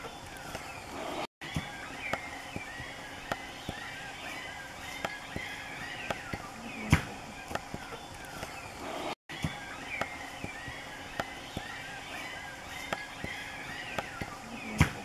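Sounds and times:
night creatures chirping: 0.1s - 15.0s.

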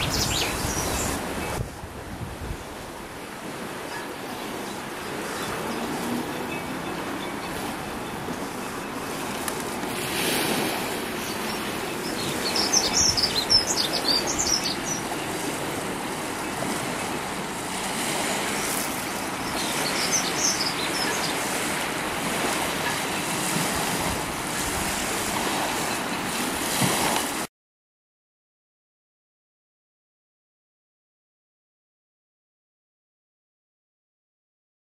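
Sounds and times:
small waves washing: 0.0s - 27.5s.

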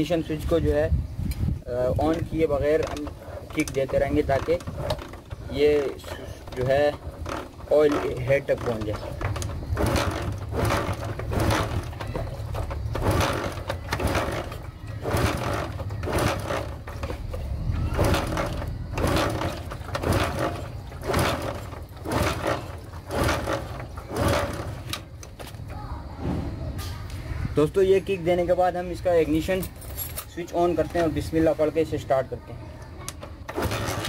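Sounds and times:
motorcycle engine kick-started: 2.0s - 25.7s, 33.1s - 34.0s.

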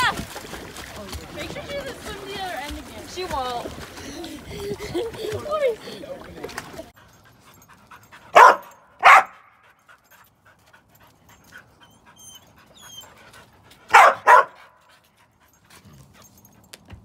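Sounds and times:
dog barking: 8.3s - 9.6s, 13.9s - 14.8s.

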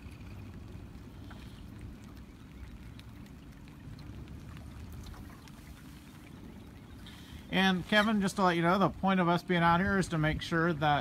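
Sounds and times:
water splashing and dripping: 0.0s - 9.2s
boat engine rumbling: 0.0s - 11.0s.

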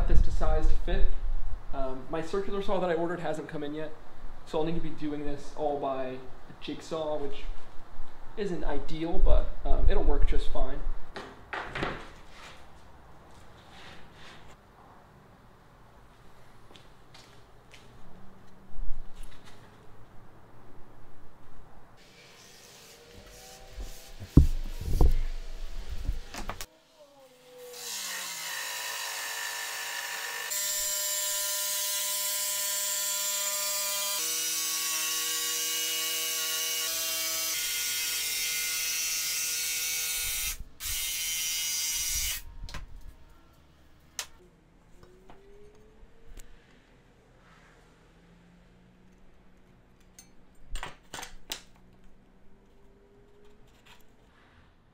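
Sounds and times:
plywood knocking: 24.2s - 25.3s.

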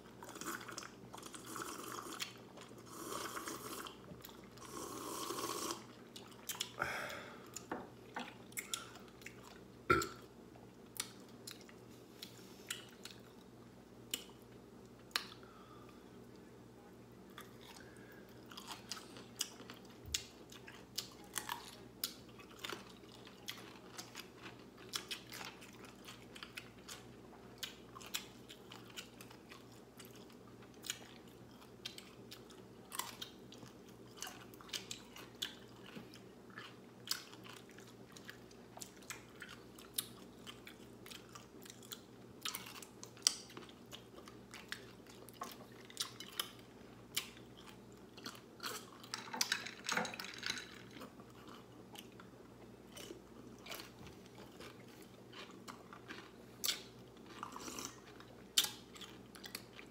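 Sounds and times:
pickles crunching when bitten: 52.9s - 59.9s.

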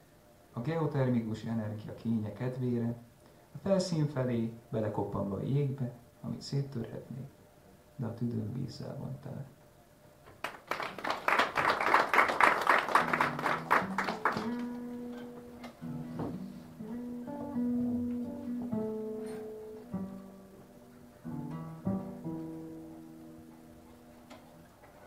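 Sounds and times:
acoustic guitar playing: 12.4s - 24.8s.

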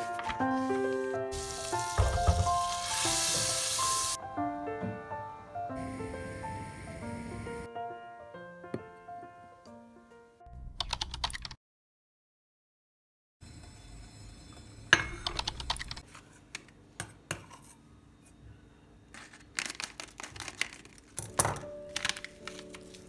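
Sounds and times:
soft background music: 0.0s - 10.6s, 21.2s - 23.0s.

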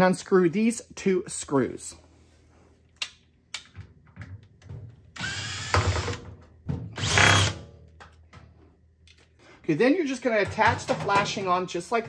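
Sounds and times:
cordless drill driving screws: 5.2s - 6.2s, 7.0s - 7.6s.

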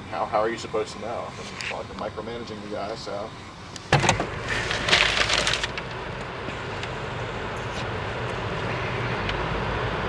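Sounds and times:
crackling rustle: 1.0s - 9.1s
car cabin hum and rumble: 1.0s - 10.0s.

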